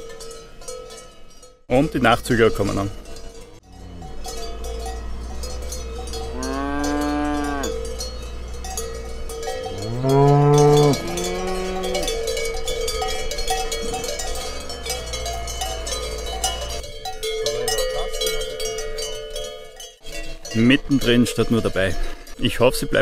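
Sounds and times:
cowbells clanking: 0:00.0 - 0:23.0
cows mooing: 0:03.6 - 0:16.8, 0:17.4 - 0:18.3.

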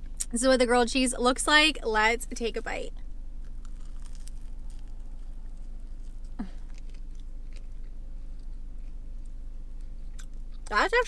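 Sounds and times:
chewing crunchy toast: 0:03.4 - 0:10.8.

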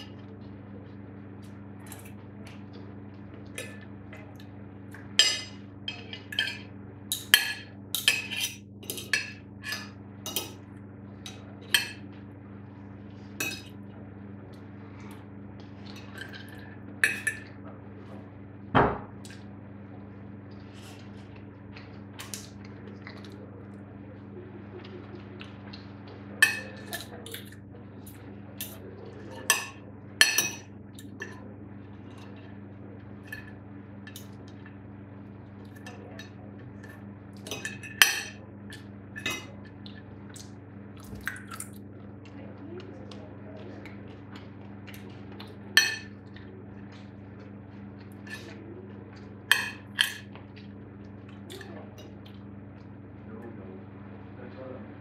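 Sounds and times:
steady low hum: 0:00.0 - 0:55.0
cutlery clinking on plate: 0:45.8 - 0:46.2, 0:49.5 - 0:50.3.

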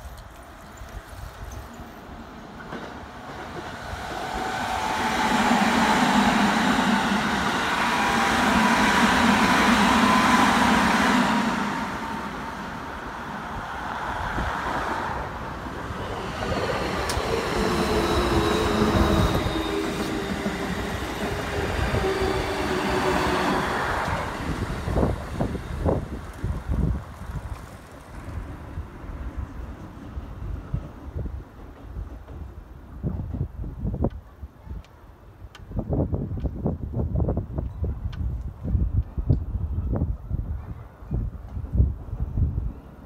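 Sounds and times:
train wheel rumble: 0:00.0 - 0:34.2.

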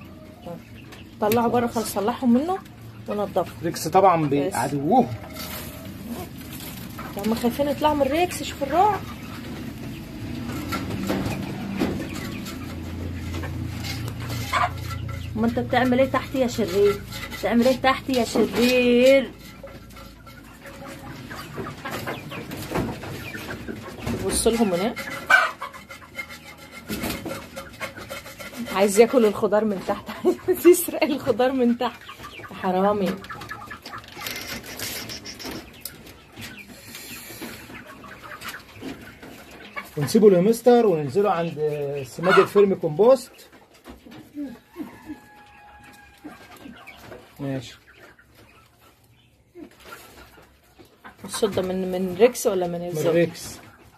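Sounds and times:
animals rustling on wire mesh: 0:00.0 - 0:53.9
poultry clucking: 0:00.0 - 0:53.9.

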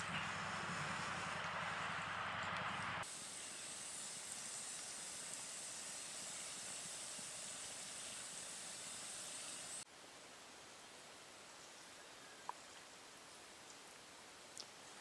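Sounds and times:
campfire hissing: 0:00.0 - 0:09.9.

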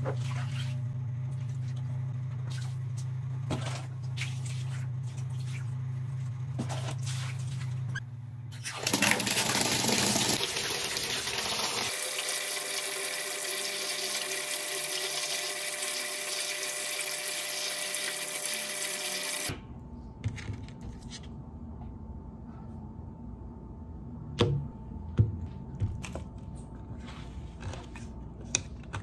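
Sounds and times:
tap water running into pail: 0:08.8 - 0:19.5.

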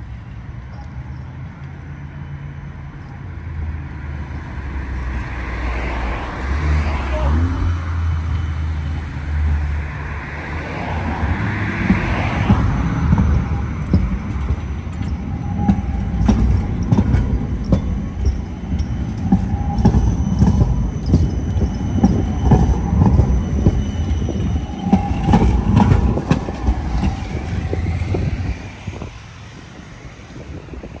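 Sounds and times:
tram rumble: 0:00.0 - 0:31.0
wheel squeals: 0:11.8 - 0:31.0
tram wheels knocking over points: 0:11.9 - 0:29.1.

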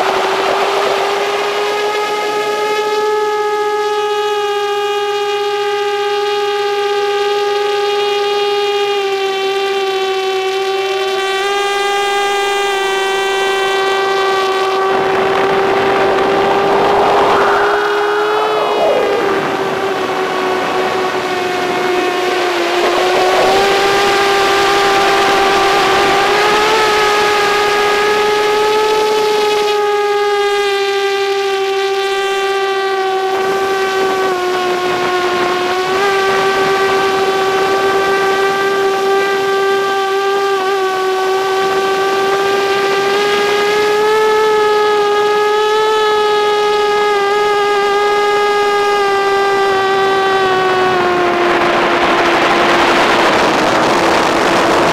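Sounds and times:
drone propellers whining: 0:11.1 - 0:30.8, 0:49.0 - 0:54.9.

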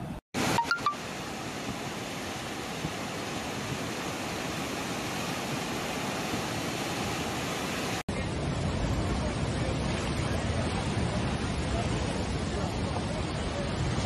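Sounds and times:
floodwater rushing: 0:00.0 - 0:14.0.

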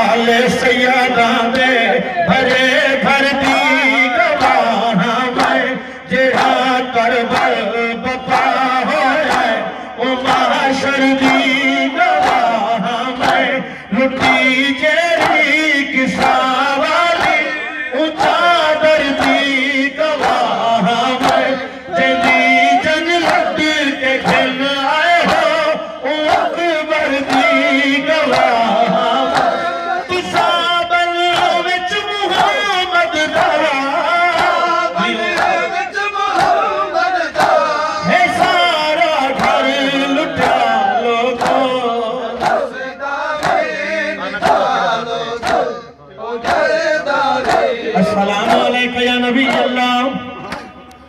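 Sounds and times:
man singing into a microphone: 0:00.0 - 0:51.0
men chanting: 0:00.0 - 0:51.0.

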